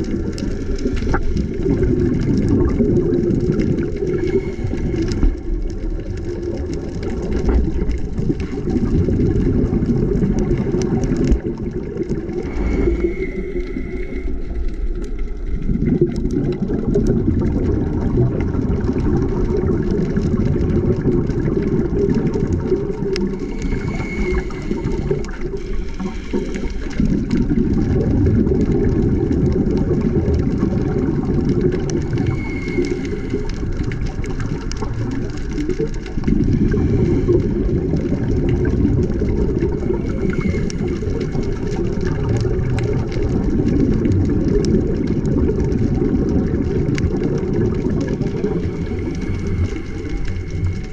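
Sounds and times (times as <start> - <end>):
underwater bubbles rumbling: 0.0 - 50.9
regulator inhalation hiss: 12.5 - 14.6, 23.4 - 27.0, 32.2 - 33.5.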